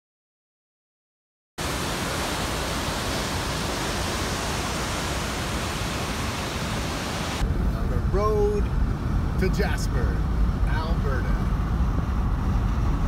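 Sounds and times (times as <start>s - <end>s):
waterfall roaring: 1.6s - 7.7s.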